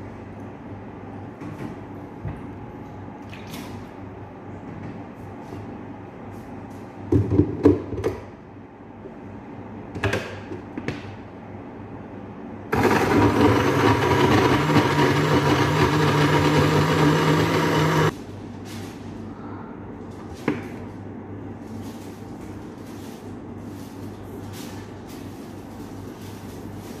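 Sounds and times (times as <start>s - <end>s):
blender running: 12.7s - 18.1s.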